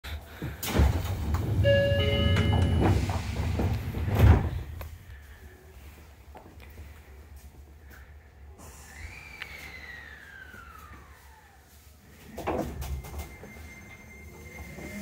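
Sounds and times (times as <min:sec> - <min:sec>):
doors meeting with a thud: 0:00.4 - 0:04.8
sliding doors closing: 0:00.4 - 0:04.8, 0:09.7 - 0:15.0
electronic door chime: 0:01.6 - 0:03.0.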